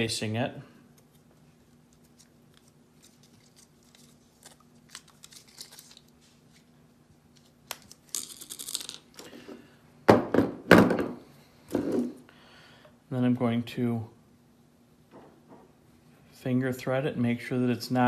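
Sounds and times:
parts thunking on tabletop: 10.1s - 12.1s.

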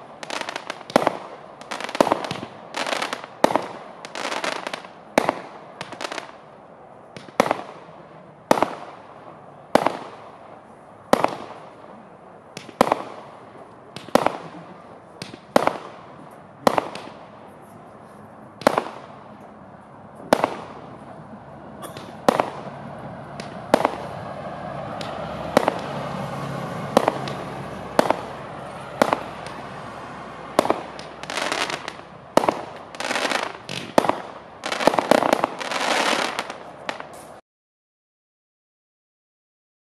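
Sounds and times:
fireworks bangs: 0.0s - 6.4s, 7.1s - 17.7s, 18.6s - 37.4s
fireworks fizzing: 21.8s - 37.4s.

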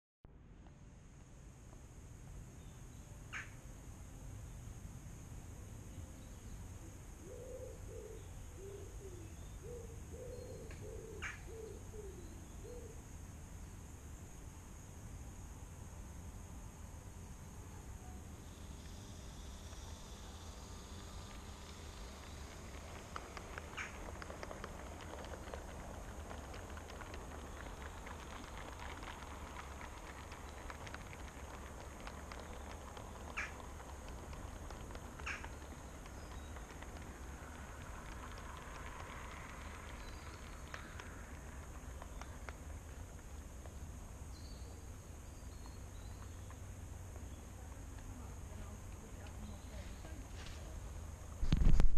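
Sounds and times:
steady low background noise: 0.3s - 51.9s
steady low hum: 0.3s - 51.9s
model train wheels clicking: 19.6s - 43.7s.

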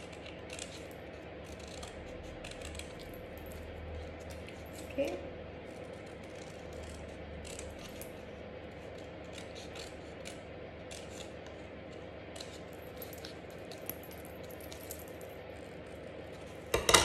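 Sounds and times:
scissors snipping cardstock: 0.0s - 3.5s, 4.1s - 8.2s, 8.8s - 13.8s.

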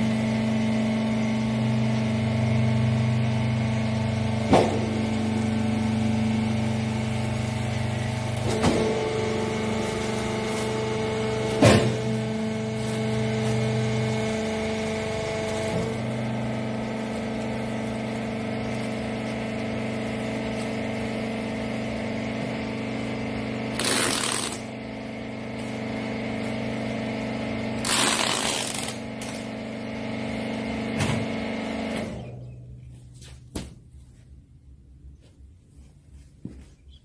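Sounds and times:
baler motor and pump humming: 0.0s - 35.8s
short loud bursts of noise: 23.8s - 24.7s, 27.8s - 29.0s.

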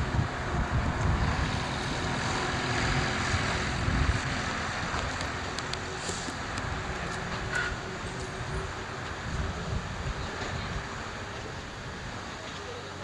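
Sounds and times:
locomotive running rumble: 0.0s - 13.0s
hiss of escaping steam: 5.9s - 6.6s.

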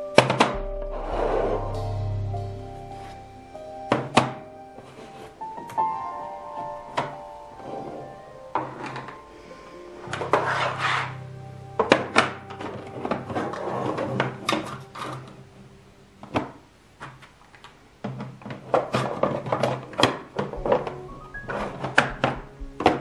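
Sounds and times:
background music: 0.0s - 16.7s, 20.1s - 23.0s
plastic bins clacking in a drawer: 18.0s - 21.0s.

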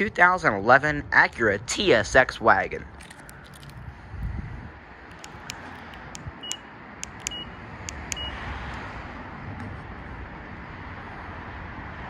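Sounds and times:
sharp clicks: 2.9s - 3.8s, 5.1s - 8.8s
car key fob beeps: 3.0s - 3.8s, 5.1s - 8.4s.

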